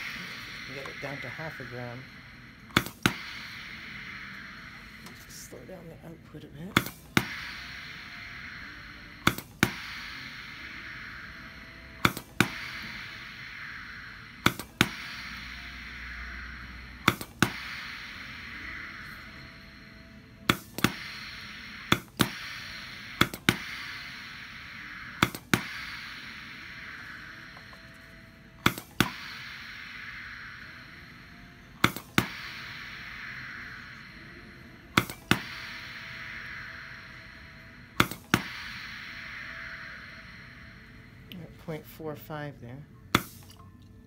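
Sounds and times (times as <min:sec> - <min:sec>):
steady air hiss: 0:00.0 - 0:42.5, 0:43.1 - 0:43.6
pneumatic machine clacks: 0:09.2 - 0:10.2, 0:12.0 - 0:13.2, 0:14.4 - 0:15.2, 0:17.0 - 0:17.9, 0:20.5 - 0:24.2, 0:27.5 - 0:30.1, 0:31.8 - 0:32.6, 0:35.0 - 0:35.9.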